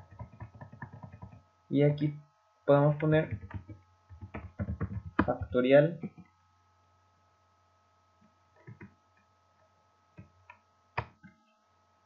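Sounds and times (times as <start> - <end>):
faint steady hum: 0.0 - 12.0
keyboard keystrokes: 3.3 - 6.2.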